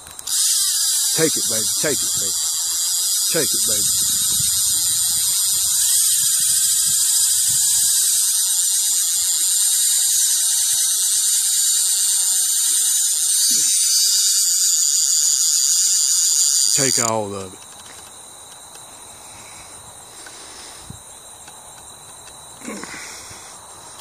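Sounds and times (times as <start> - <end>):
fishing reel drag buzzing: 0.0 - 18.2.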